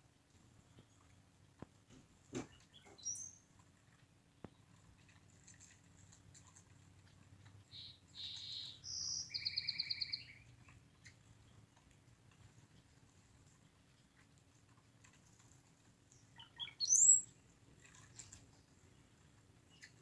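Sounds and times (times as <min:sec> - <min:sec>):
birds calling: 0:07.6 - 0:11.6, 0:16.1 - 0:20.0.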